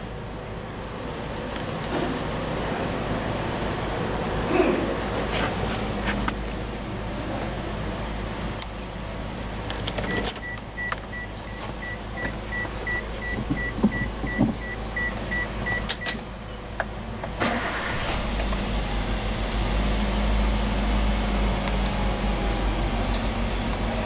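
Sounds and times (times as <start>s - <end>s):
car engine cranking and idling: 0.0s - 24.0s
car warning chime beeping: 10.1s - 16.2s.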